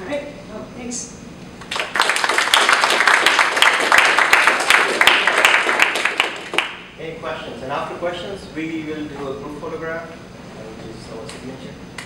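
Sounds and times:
audience applauding: 1.6s - 6.8s.

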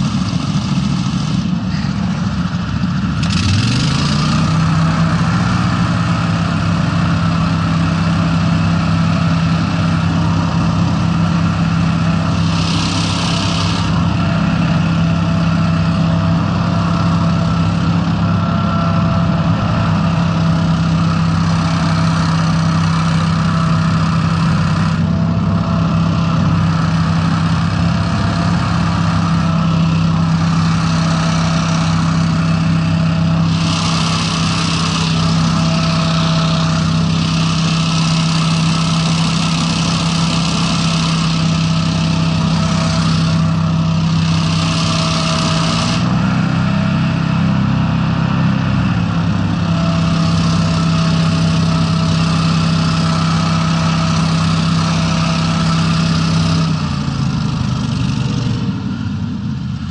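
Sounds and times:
hovercraft engines droning: 0.0s - 59.9s.

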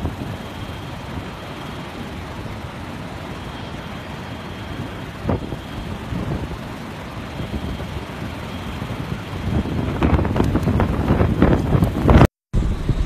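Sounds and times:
driving rain: 0.0s - 13.0s
strong wind: 0.0s - 13.0s
wind buffeting microphone: 4.8s - 13.0s.

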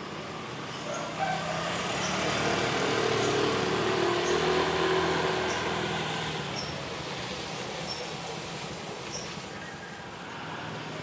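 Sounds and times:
small motorcycle passing by: 0.1s - 7.4s.

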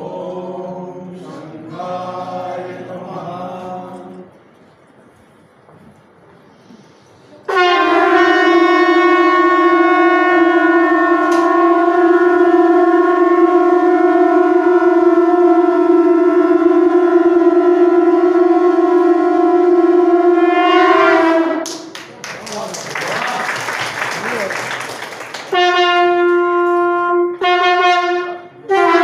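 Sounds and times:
conch shells blown together: 7.5s - 21.9s, 25.5s - 29.0s.

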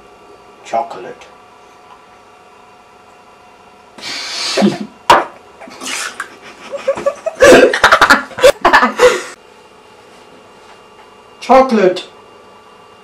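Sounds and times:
boy coughing and spluttering: 4.6s - 5.0s, 7.4s - 7.9s.

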